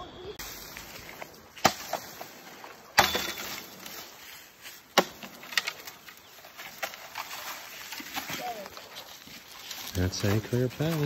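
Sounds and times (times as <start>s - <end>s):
bamboo being chopped: 1.5s - 2.3s, 2.9s - 4.0s, 4.8s - 7.3s.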